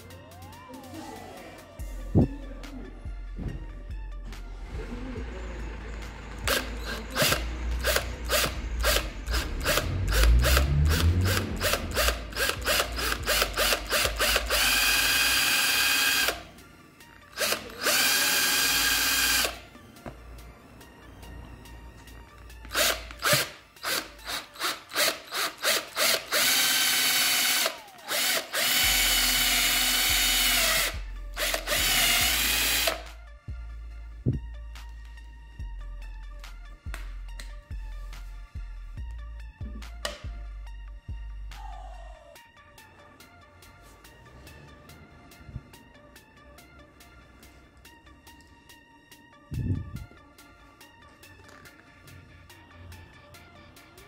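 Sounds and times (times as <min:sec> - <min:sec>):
cordless drill drilling plastic: 0:06.4 - 0:16.4, 0:17.3 - 0:19.6, 0:22.6 - 0:33.1.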